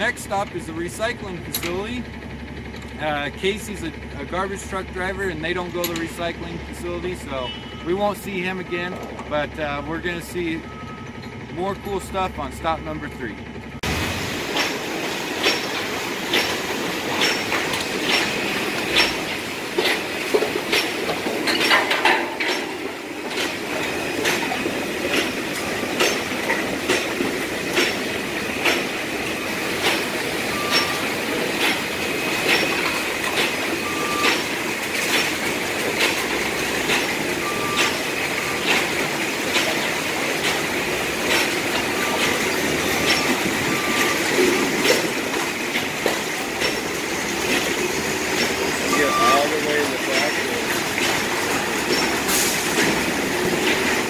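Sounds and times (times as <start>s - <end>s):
loud machinery running: 0.0s - 54.0s
short beeps: 7.4s - 8.9s, 10.6s - 11.2s, 30.5s - 31.1s, 48.9s - 50.3s
regular clanking knock: 15.4s - 23.6s.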